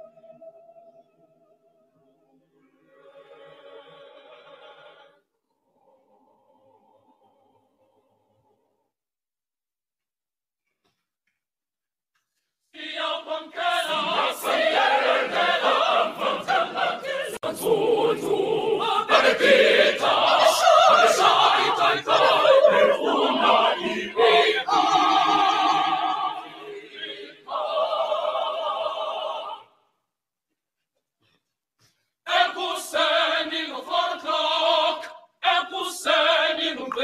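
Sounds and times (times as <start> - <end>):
children's choir singing: 3.0 - 5.2, 12.8 - 29.8, 32.3 - 37.0.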